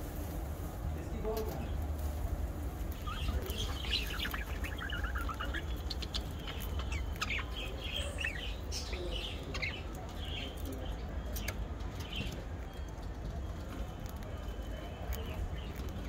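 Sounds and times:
budgerigars chirping: 0:02.9 - 0:12.4.

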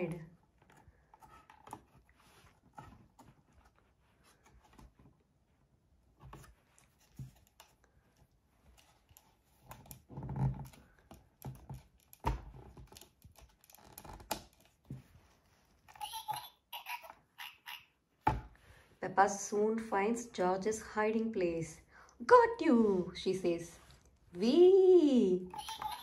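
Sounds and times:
hands handling a cardboard book: 0:00.4 - 0:15.9.

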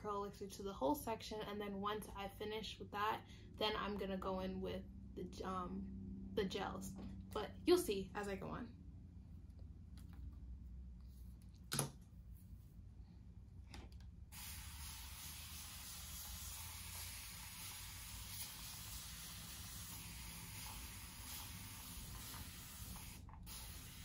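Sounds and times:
spray bottle hissing: 0:14.4 - 0:24.0.

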